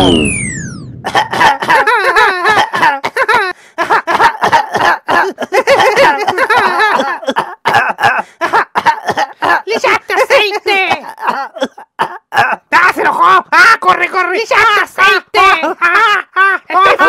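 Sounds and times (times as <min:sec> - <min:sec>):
magic spell sound effect: 0:00.0 - 0:01.0.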